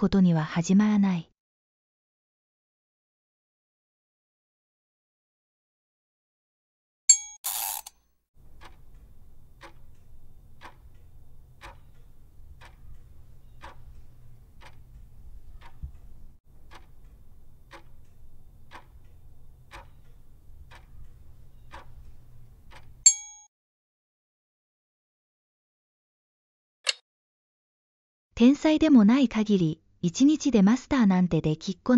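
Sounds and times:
clock ticking timer: 0:07.2 - 0:23.5.

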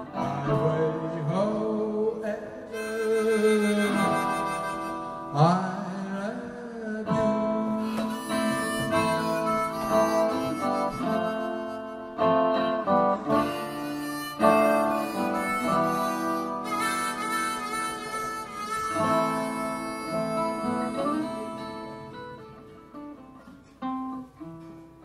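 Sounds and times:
acoustic guitar: 0:00.0 - 0:25.0
harmonica sustained notes: 0:02.7 - 0:06.1, 0:07.7 - 0:23.1.

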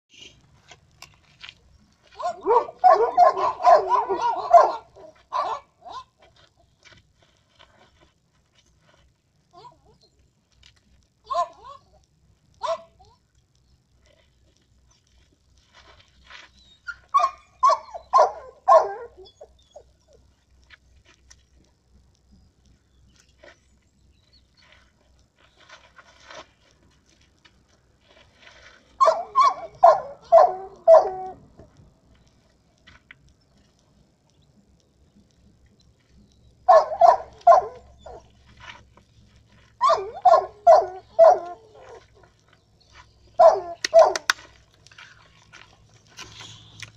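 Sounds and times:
faint scuffling: 0:00.1 - 0:11.5, 0:14.0 - 0:46.9
dog barking: 0:02.2 - 0:06.0, 0:11.3 - 0:11.8, 0:12.6 - 0:12.9, 0:17.2 - 0:19.3, 0:29.0 - 0:31.3, 0:36.7 - 0:38.2, 0:39.8 - 0:42.0, 0:43.4 - 0:44.3.

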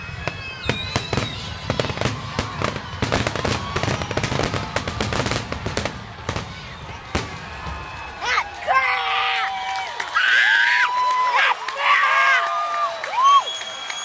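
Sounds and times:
whistling firework shells: 0:00.0 - 0:08.2, 0:13.0 - 0:14.0
firework bursts and cracks: 0:00.1 - 0:08.2.

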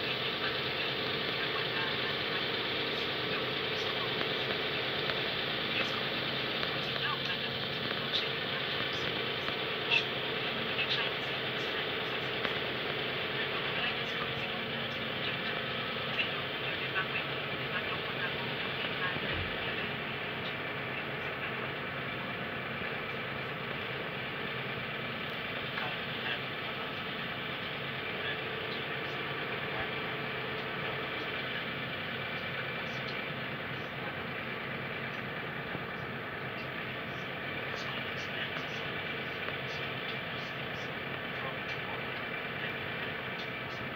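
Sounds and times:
diesel lorry engine idling: 0:00.0 - 0:43.9.

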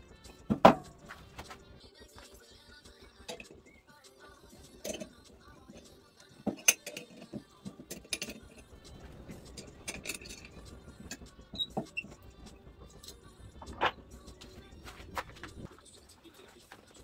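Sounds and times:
metal tool clinking on wood: 0:07.9 - 0:08.6.

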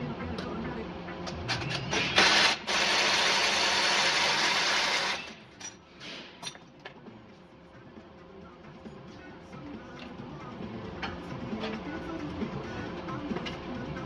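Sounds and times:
power tool running: 0:01.9 - 0:05.4.

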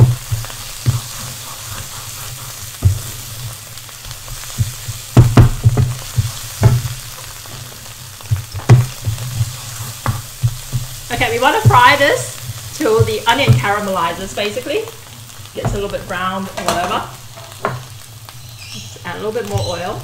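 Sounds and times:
wooden spatula scraping a pan: 0:00.0 - 0:17.9
onions sizzling in a frying pan: 0:00.0 - 0:20.0.

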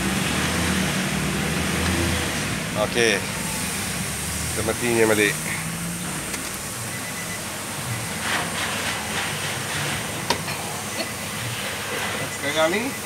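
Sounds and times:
steady hiss: 0:02.7 - 0:13.0.

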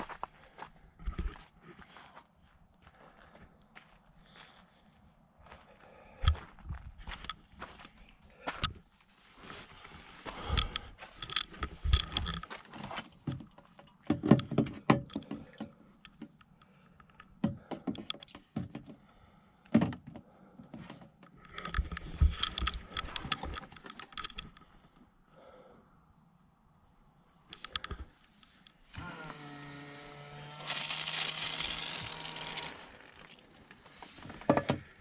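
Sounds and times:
plastic jug and pump clicks: 0:10.4 - 0:19.0, 0:30.6 - 0:33.8.

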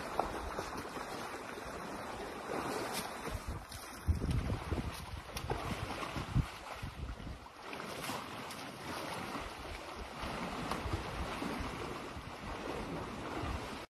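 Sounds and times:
wind buffeting microphone: 0:03.2 - 0:07.5, 0:09.4 - 0:13.8.

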